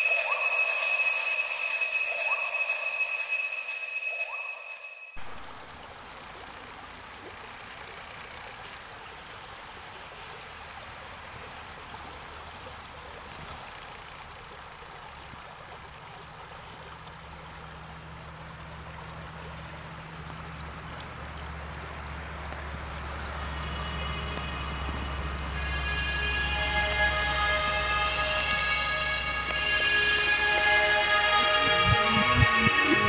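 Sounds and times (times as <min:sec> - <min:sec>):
stream water flowing: 0:00.0 - 0:33.0
low steady hum: 0:14.1 - 0:33.0.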